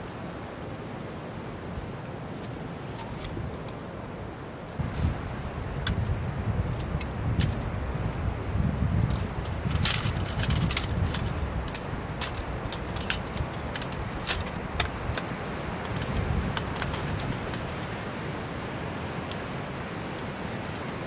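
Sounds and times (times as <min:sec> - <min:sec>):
folding table clicks and clinks: 0:09.1 - 0:17.7.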